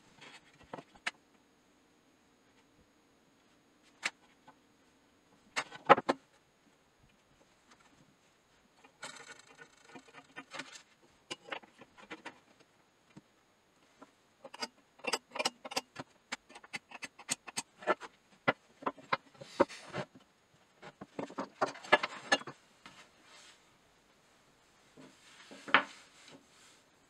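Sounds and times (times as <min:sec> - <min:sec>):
tools clicking and tapping on bench: 0:14.4 - 0:18.0.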